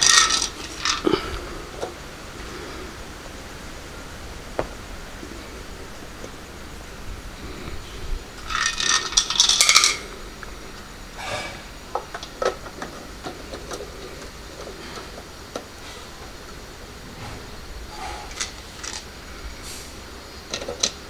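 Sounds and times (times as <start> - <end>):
plastic parts clattering: 0.0 - 2.0, 8.4 - 16.6, 17.9 - 19.2, 20.4 - 21.0.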